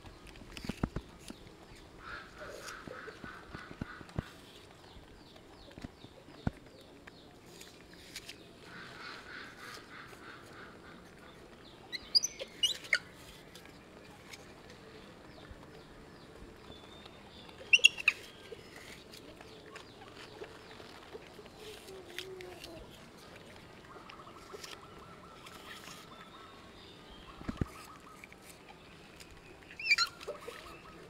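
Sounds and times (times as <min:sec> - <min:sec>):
high squeaky chirping calls: 0:11.9 - 0:13.1, 0:17.6 - 0:18.9, 0:29.7 - 0:30.9.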